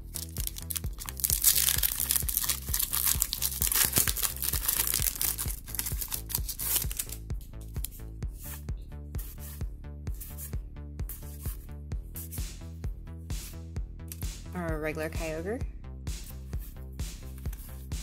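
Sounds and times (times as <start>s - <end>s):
foil wrapper crinkling and tearing: 0.0s - 7.2s
background music with steady beat: 0.0s - 18.0s.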